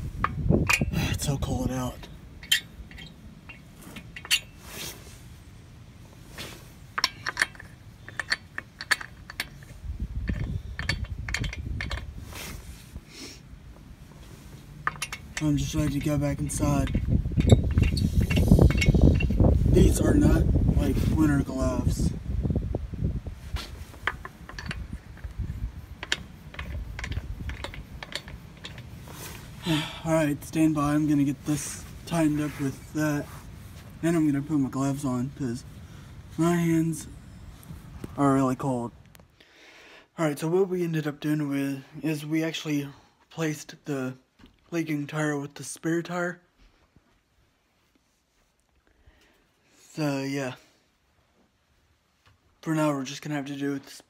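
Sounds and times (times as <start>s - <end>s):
lug nuts clicking and rattling: 0.0s - 4.6s, 6.9s - 12.2s, 14.7s - 20.0s, 23.9s - 29.5s.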